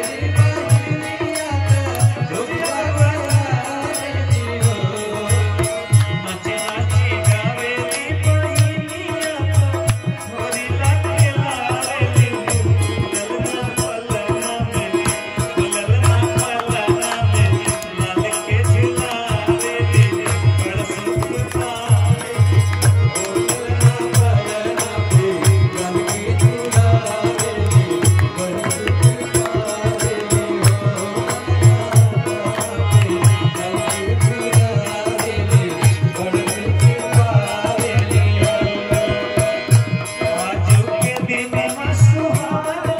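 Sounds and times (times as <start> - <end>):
man singing folk song: 0.0 - 22.6, 40.2 - 42.9
harmonium: 0.0 - 42.9.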